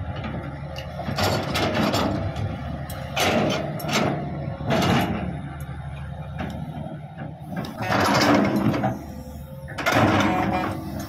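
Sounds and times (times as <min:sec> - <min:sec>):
heavy diesel engines running: 0:00.0 - 0:11.0
metal scrapes and squeals: 0:07.8 - 0:11.0.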